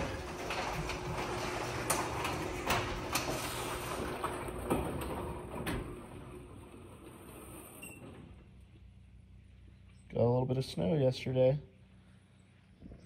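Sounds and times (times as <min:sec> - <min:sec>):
garage door clacking: 0:00.0 - 0:09.1
garage door opener hum: 0:00.0 - 0:09.8.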